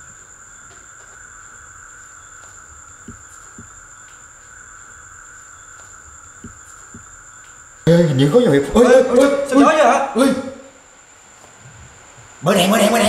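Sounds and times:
insect chorus chirring: 0.0 - 13.0
soft low thumps: 3.0 - 3.9, 6.4 - 7.2.

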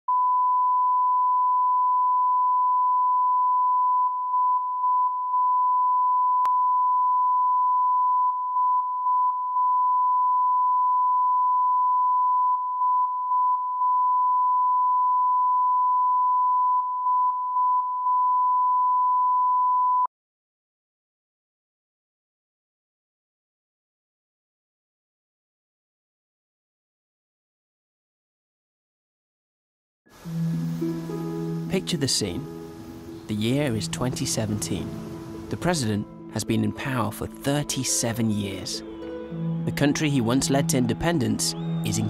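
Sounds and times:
steady sine tone: 0.1 - 20.1.

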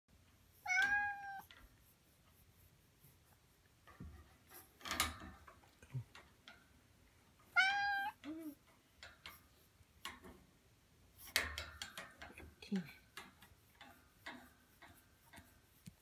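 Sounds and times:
soft rustle: 0.1 - 16.0
cat meowing: 0.7 - 1.5, 7.6 - 8.6.

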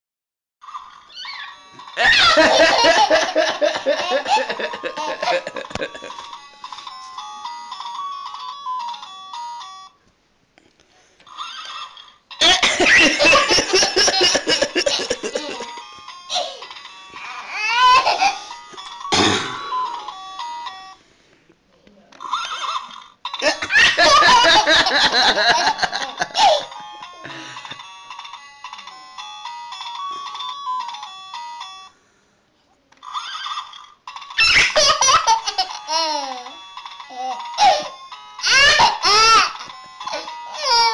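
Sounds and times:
baby laughing: 1.1 - 6.3, 11.3 - 18.5, 22.2 - 26.8, 34.4 - 40.9
toddler giggling: 2.0 - 6.2, 11.4 - 16.7, 22.3 - 27.4.

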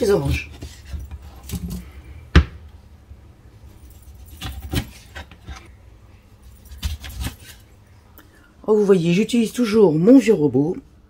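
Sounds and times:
knife cutting oranges: 4.0 - 5.7, 6.4 - 7.6.

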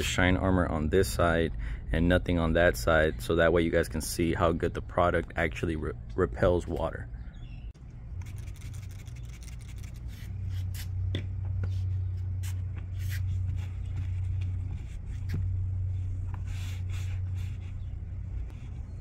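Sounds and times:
steady low hum: 0.0 - 19.0
towel wiping window glass: 11.6 - 19.0.

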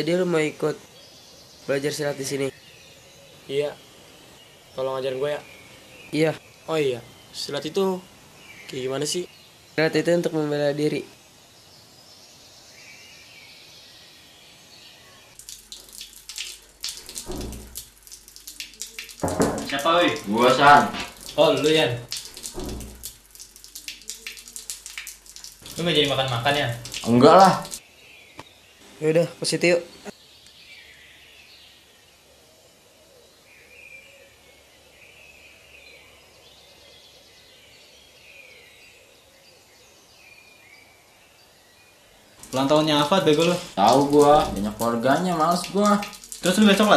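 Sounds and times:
birds chirping: 0.0 - 46.9
faint background hiss: 0.0 - 46.9
bird twittering: 15.0 - 28.6
water splashing in bathroom: 15.4 - 27.8, 42.4 - 46.9.

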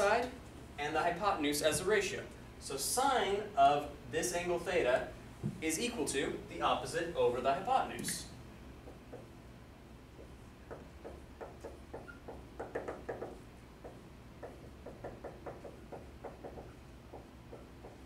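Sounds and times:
pen tapping on whiteboard: 8.8 - 9.3, 10.2 - 18.0.

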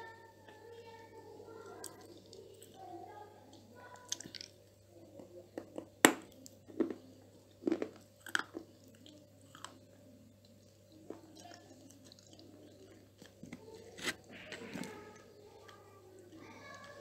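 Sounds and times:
chewing crunchy clay: 3.9 - 4.6, 6.6 - 17.0.

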